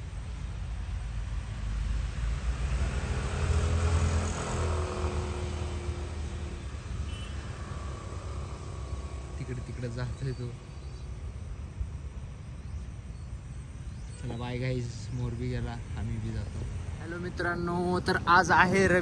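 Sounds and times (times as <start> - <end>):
motor vehicle passing by: 1.0 - 11.6
steady low rumble: 7.9 - 19.0.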